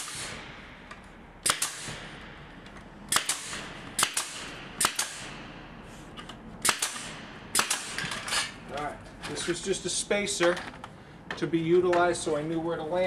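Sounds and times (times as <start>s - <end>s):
staple gun firing: 1.4s - 2.0s, 3.1s - 5.3s, 6.6s - 8.3s.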